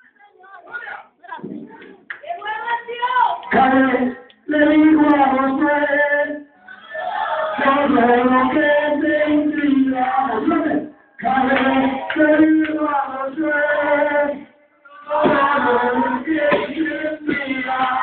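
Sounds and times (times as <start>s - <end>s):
man singing into a microphone: 3.5s - 6.5s, 7.6s - 14.4s.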